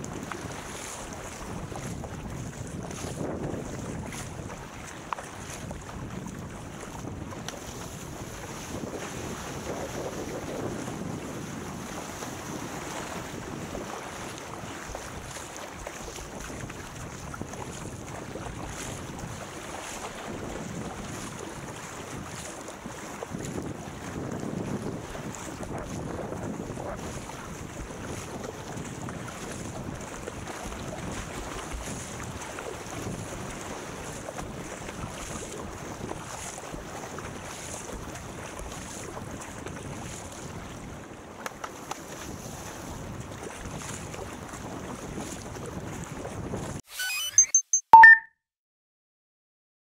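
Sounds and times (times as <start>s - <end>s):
wind buffeting microphone: 0.0s - 41.1s, 42.1s - 46.8s
water splashing around paddled boat: 0.0s - 46.8s.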